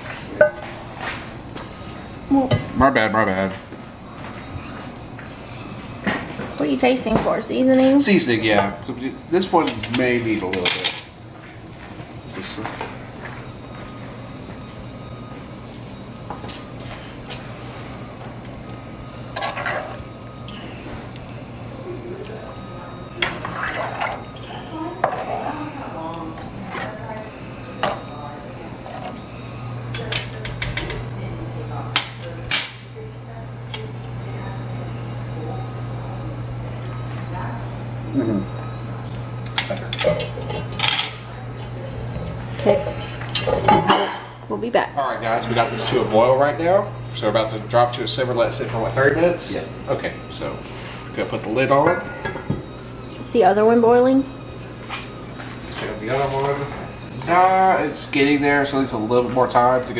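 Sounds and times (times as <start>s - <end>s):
kitchen clatter: 0.0s - 1.2s, 9.5s - 11.1s, 19.3s - 20.6s, 29.9s - 31.1s, 31.9s - 32.9s, 39.4s - 41.4s, 42.6s - 44.4s
steady low hum: 0.0s - 59.9s.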